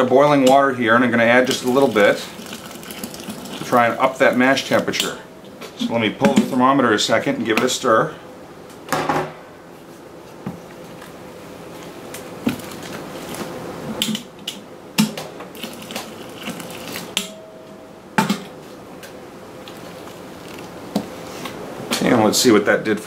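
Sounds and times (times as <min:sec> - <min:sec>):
paddle stirring wet grain mash: 0:01.3 - 0:05.0, 0:15.6 - 0:17.2
hot water pouring: 0:01.3 - 0:05.1, 0:15.5 - 0:17.2.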